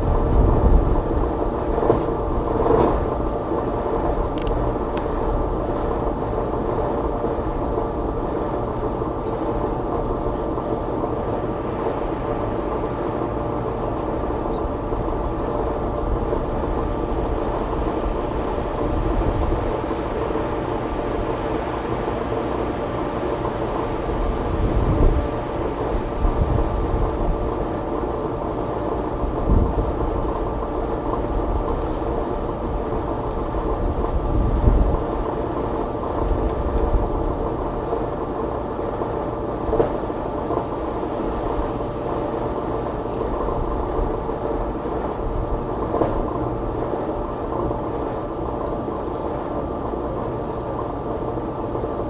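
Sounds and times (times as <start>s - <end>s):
constant rushing noise: 0.0s - 52.0s
mechanical hum: 0.0s - 52.0s.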